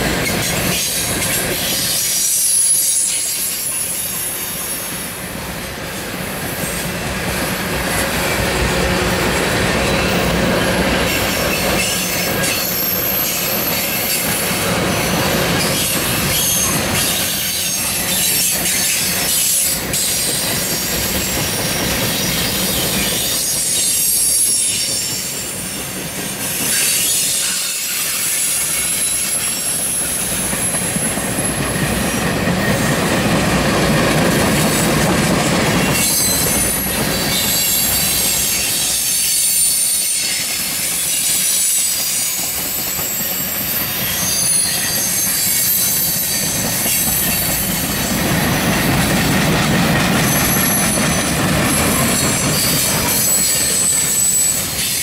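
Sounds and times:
train wheels rumbling on rail: 0.0 - 55.0
high-pitched wheel squeal: 35.8 - 48.2, 50.2 - 55.0.

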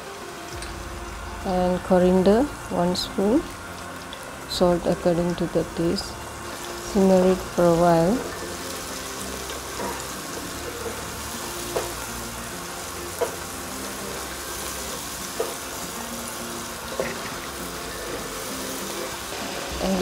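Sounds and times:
paste sizzling in oil: 0.0 - 20.0.

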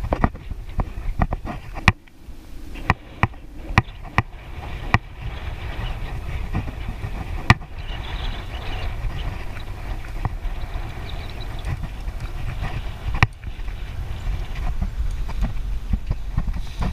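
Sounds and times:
bicycle rattling over bumps: 0.0 - 16.9
wind and road rumble: 0.0 - 16.9.

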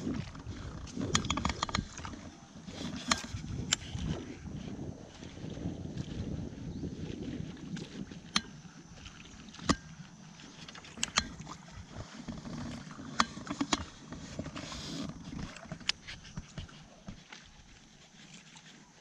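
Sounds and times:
wind and water rumble: 0.0 - 19.0
fishing reel clicks and knocks: 1.0 - 4.2, 8.2 - 8.6, 10.7 - 11.6, 12.3 - 16.3.

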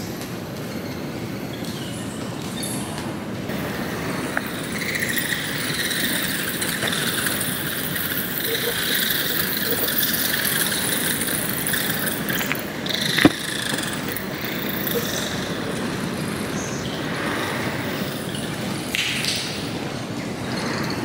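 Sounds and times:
bats squeaking: 3.5 - 19.4.

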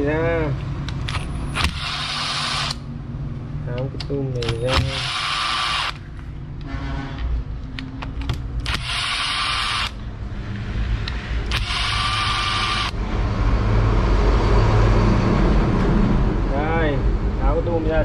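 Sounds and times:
cordless drill motor running: 1.1 - 2.8, 4.7 - 6.0, 8.6 - 10.0, 11.5 - 13.0.

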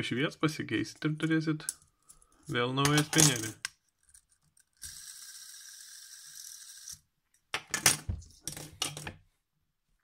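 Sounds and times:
fidget spinner whirring: 4.6 - 7.0.

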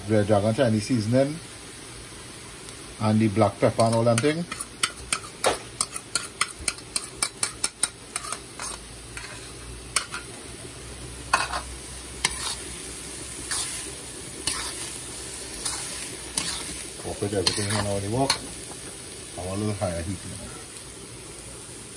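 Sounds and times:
food sizzling in wok: 0.0 - 21.9
spatula scraping wok: 3.5 - 20.7
spoon scraping and tapping bowl: 3.8 - 9.3.

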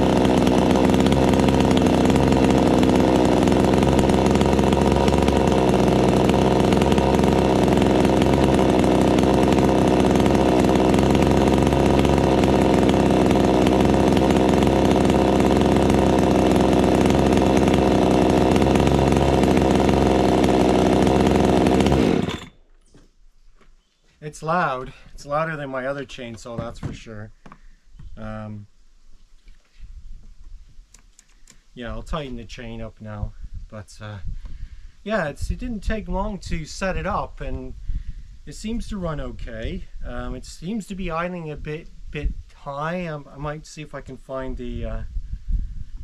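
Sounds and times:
chainsaw idling: 0.0 - 22.7.

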